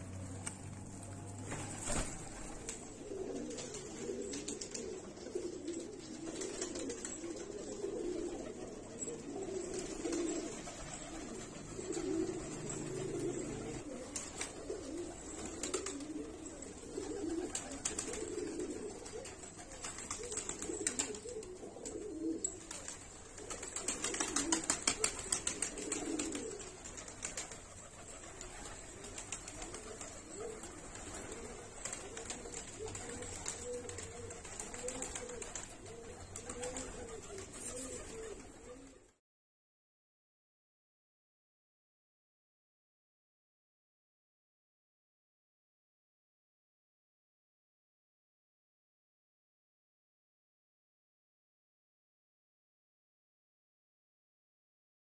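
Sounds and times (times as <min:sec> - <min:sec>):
wings flapping: 0:00.0 - 0:08.7, 0:09.5 - 0:39.0
pigeons cooing: 0:01.1 - 0:39.1.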